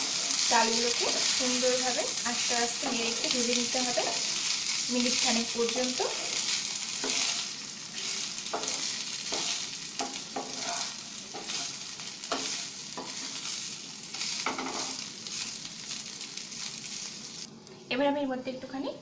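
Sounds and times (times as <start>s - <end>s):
rice sizzling in fat: 0.0s - 17.6s
wooden spatula scraping pan: 7.0s - 13.4s.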